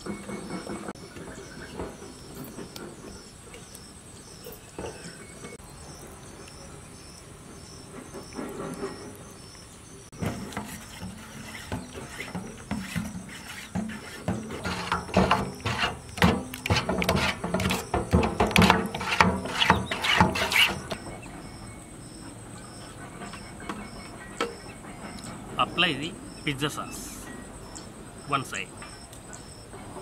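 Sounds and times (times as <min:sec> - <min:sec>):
insects chirping: 0:00.0 - 0:30.0
spoon scraping metal bowl: 0:10.2 - 0:21.0.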